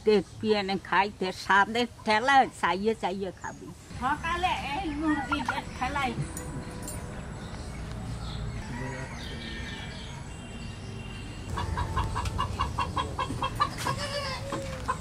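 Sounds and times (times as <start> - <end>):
chicken arching call: 11.5 - 15.0
chicken clucking rapidly: 11.5 - 15.0.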